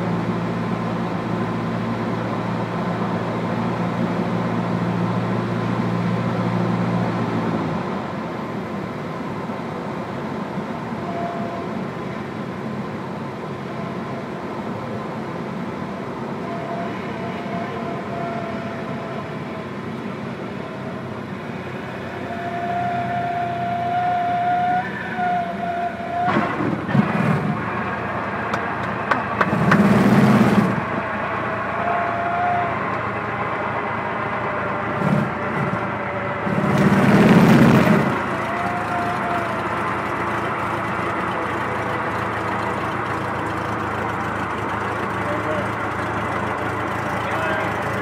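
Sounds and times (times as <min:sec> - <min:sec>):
small plane engine: 0:00.0 - 0:48.0
high warning horn tone: 0:10.7 - 0:12.2, 0:16.3 - 0:19.9, 0:22.1 - 0:26.4.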